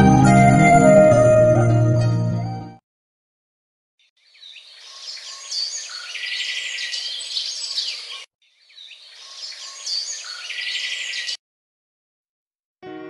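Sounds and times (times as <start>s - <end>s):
birds chirping: 4.1s - 11.4s.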